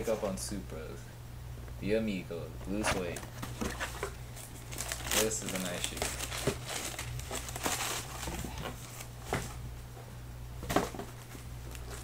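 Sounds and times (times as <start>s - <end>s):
low electrical hum: 0.0s - 12.0s
shoe handling rustling: 2.7s - 9.6s.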